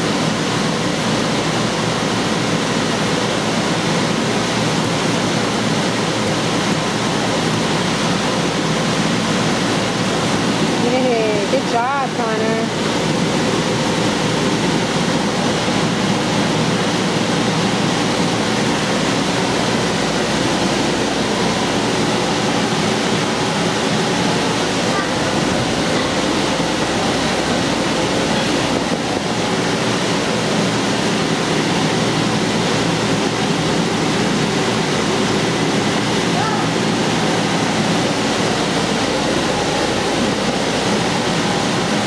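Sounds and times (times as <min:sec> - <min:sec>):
air blower rushing: 0:00.0 - 0:42.0.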